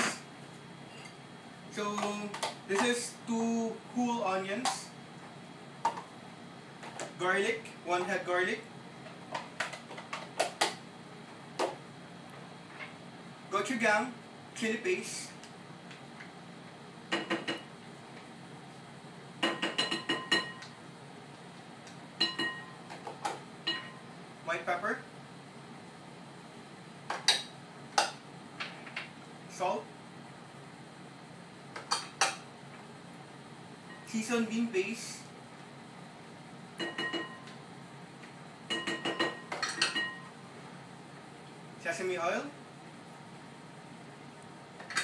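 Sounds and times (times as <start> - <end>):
spoon clinking against glass bowl: 22.2 - 22.8, 36.8 - 37.5, 38.7 - 40.3
metal spoon clinking against bowl: 36.8 - 37.5.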